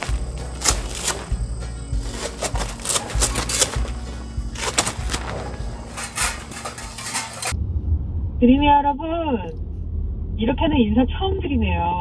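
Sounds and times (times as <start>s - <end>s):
tent fabric rustling and clattering: 0.0s - 7.5s.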